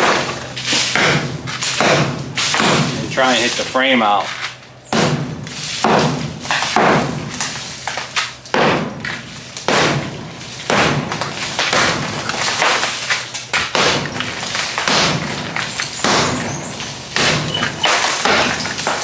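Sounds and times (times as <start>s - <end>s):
sledgehammer hitting concrete block: 0.0s - 3.0s, 4.9s - 7.5s, 8.5s - 19.0s
rattle of breaking block: 11.6s - 19.0s.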